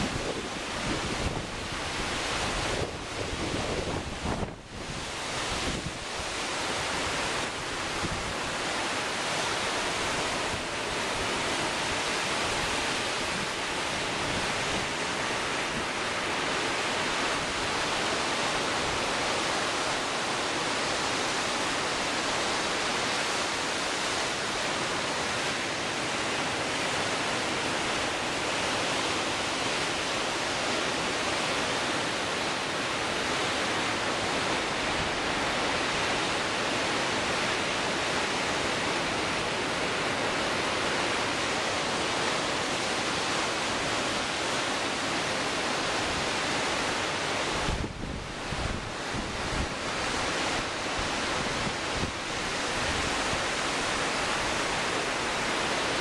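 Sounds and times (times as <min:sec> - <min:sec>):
strong wind: 0:00.0 - 0:56.0
waves breaking on shore: 0:00.0 - 0:56.0.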